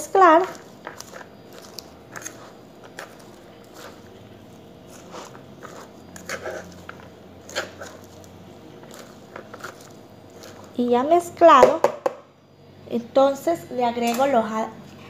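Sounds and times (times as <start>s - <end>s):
tongs tossing salad rustling: 0.0s - 11.4s
faint steady hum: 0.0s - 15.0s.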